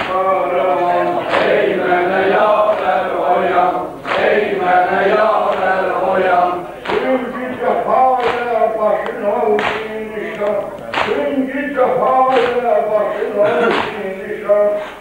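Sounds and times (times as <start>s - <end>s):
men chanting a lament: 0.0s - 15.0s
hands slapping chests: 4.0s - 4.4s, 6.8s - 7.2s, 8.2s - 11.3s, 12.3s - 12.7s, 13.6s - 14.0s.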